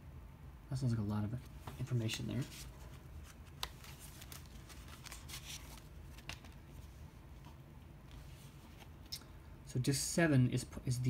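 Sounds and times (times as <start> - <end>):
low room hum: 0.0 - 11.0
discs and packaging clicking: 3.4 - 6.7.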